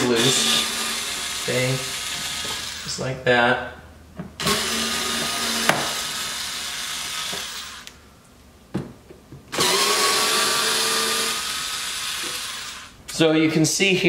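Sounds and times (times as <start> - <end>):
cordless driver whirring: 0.0 - 2.9, 4.4 - 8.0, 9.5 - 13.0.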